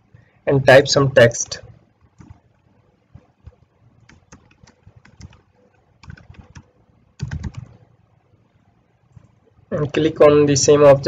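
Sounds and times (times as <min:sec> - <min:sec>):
keyboard keystroke clicks: 0:02.2 - 0:02.4, 0:03.4 - 0:05.4, 0:06.0 - 0:07.8.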